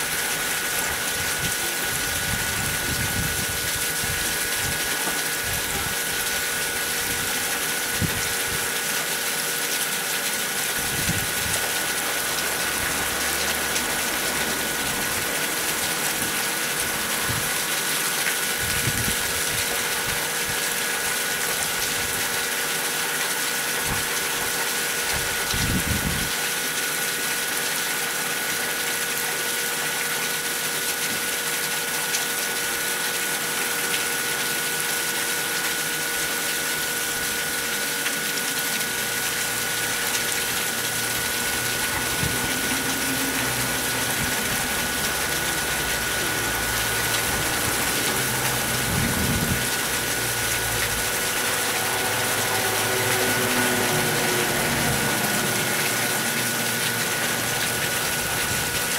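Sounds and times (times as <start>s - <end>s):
water splashing down rock: 30.4s - 53.0s.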